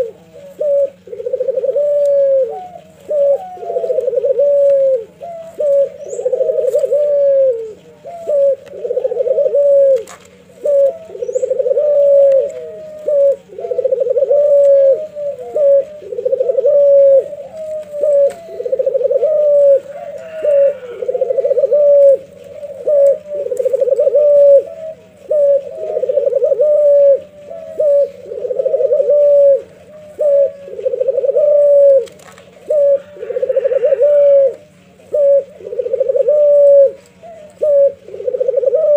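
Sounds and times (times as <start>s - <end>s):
dove cooing: 0.0s - 38.9s
faint low hum: 0.0s - 38.9s.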